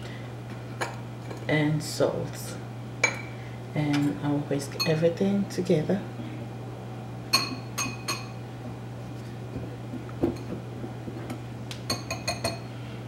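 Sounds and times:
whisk clinking against glass bowl: 0:11.9 - 0:12.6.

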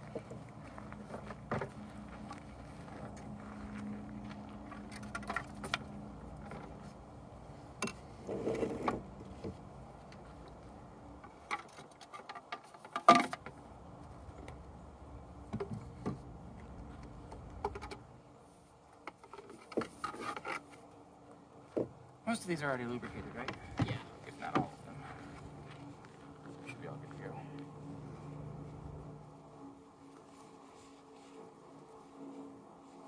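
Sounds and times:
wooden pieces knocking and rubbing: 0:11.2 - 0:13.6.

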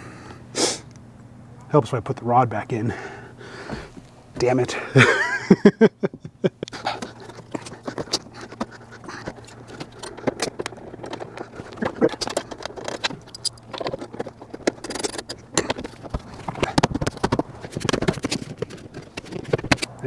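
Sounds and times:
light metal clicks and rattles: 0:06.6 - 0:19.9.

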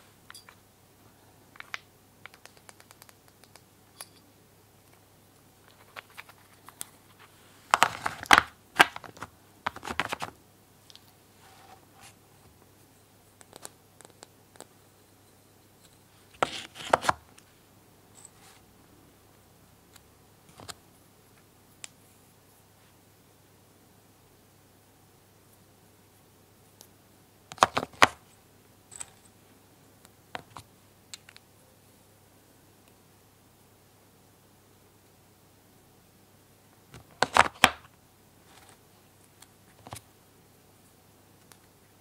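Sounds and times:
wooden blocks clicking: 0:01.6 - 0:03.7.

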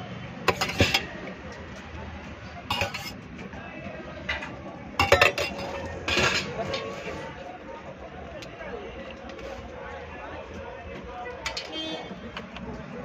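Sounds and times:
ladle clinking against metal pots: 0:00.5 - 0:01.4, 0:02.7 - 0:03.3, 0:04.2 - 0:07.3, 0:11.4 - 0:12.0.

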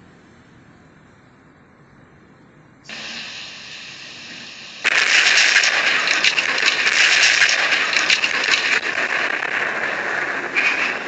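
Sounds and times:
crackling rushing roar: 0:02.9 - 0:11.0.

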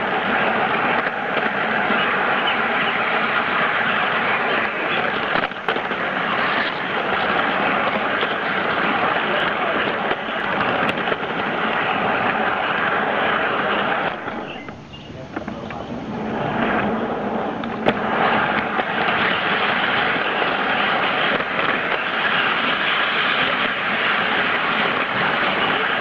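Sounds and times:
model train rumbling on track: 0:00.0 - 0:26.0.

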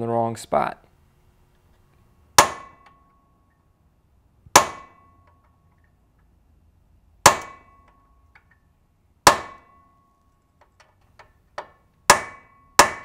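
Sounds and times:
hammer striking steel punch: 0:02.4 - 0:03.3, 0:04.5 - 0:05.6, 0:07.2 - 0:08.6, 0:09.2 - 0:10.1, 0:11.6 - 0:13.0.

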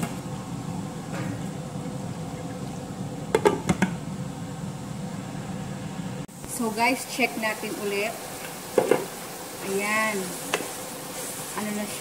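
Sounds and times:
meat sizzling: 0:06.3 - 0:12.0.

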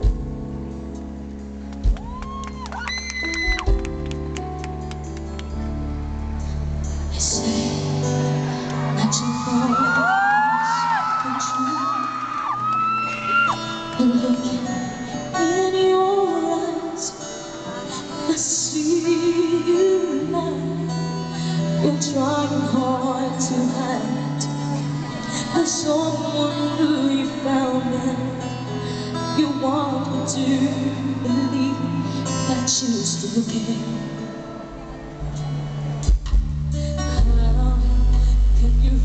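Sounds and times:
live band playing: 0:00.0 - 0:09.5, 0:34.2 - 0:37.5
woman singing: 0:07.0 - 0:12.6, 0:13.2 - 0:34.6, 0:36.9 - 0:39.0.

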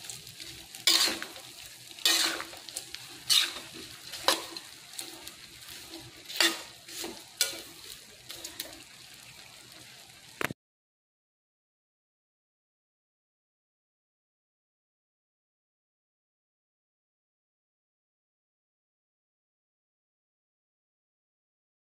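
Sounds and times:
utensil scraping a wok: 0:00.0 - 0:10.3
food sizzling: 0:00.0 - 0:10.6.

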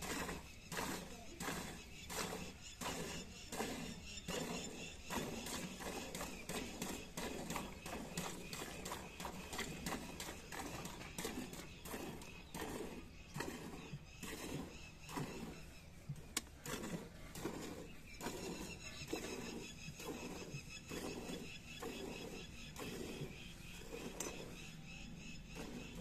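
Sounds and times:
milk squirting into pail: 0:00.0 - 0:24.6.

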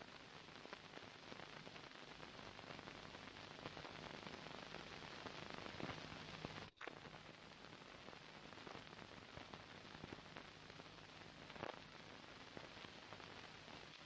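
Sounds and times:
old film soundtrack hiss and crackle: 0:00.0 - 0:14.0.

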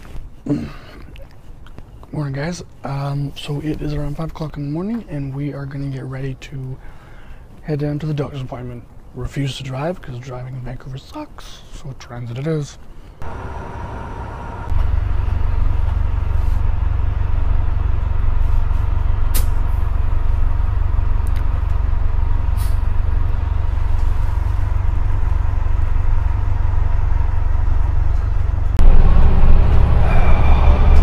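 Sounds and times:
faint steady whine: 0:13.1 - 0:19.3
vehicle engine rumbling: 0:13.2 - 0:31.0.

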